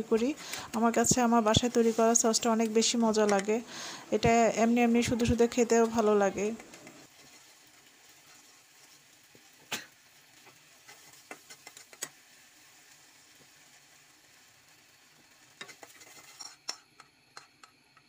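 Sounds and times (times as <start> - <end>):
sauce sizzling: 0.0 - 18.0
spatula clicking against pan: 11.3 - 12.2.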